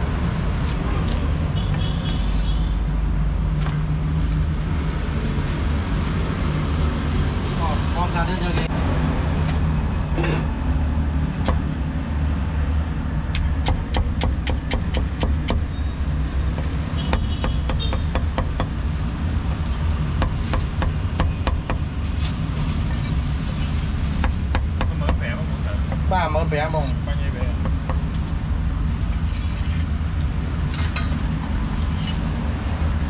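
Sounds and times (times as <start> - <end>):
cleaver chopping on wooden board: 13.4 - 15.7.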